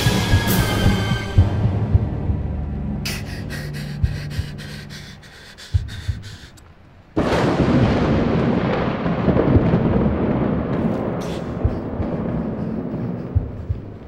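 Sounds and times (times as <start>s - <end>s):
heartbeat thumps: 0.0s - 6.6s, 9.2s - 14.0s
low dark drone: 0.0s - 7.2s, 9.3s - 14.0s
loud rumbling wall of noise: 0.0s - 14.0s
fast faint ticking: 1.4s - 6.8s, 11.0s - 14.0s.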